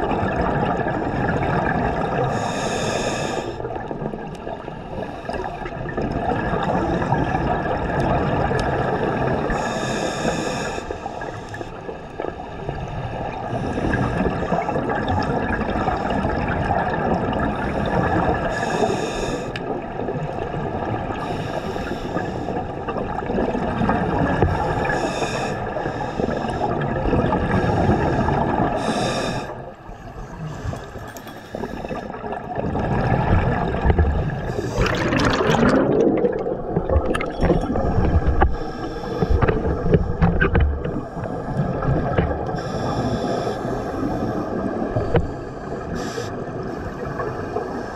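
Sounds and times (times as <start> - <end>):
gurgling rush of exhaled bubbles: 0.0 - 2.5, 5.1 - 9.7, 12.2 - 18.6, 22.2 - 25.1, 26.5 - 29.6, 31.6 - 42.6.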